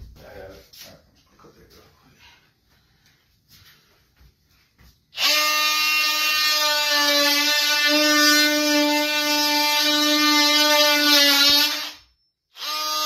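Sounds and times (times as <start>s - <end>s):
multi-tool buzzing cutting wood: 5.2s - 13.0s.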